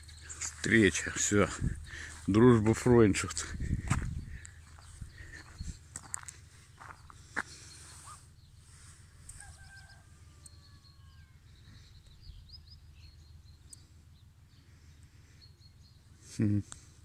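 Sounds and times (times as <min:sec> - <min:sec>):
faint bird chirps: 0:06.7 - 0:17.0.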